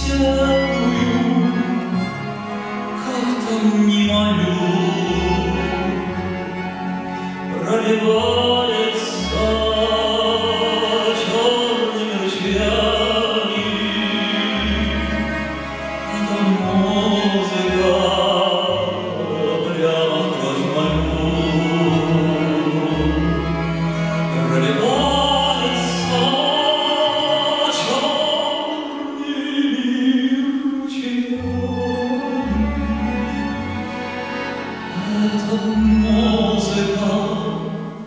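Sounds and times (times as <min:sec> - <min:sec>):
man singing into a microphone: 0:00.0 - 0:02.0, 0:03.0 - 0:06.2, 0:07.5 - 0:15.4, 0:16.1 - 0:33.6, 0:34.9 - 0:38.0
double bass low notes: 0:00.0 - 0:11.5, 0:12.4 - 0:26.3
violin: 0:00.0 - 0:38.0.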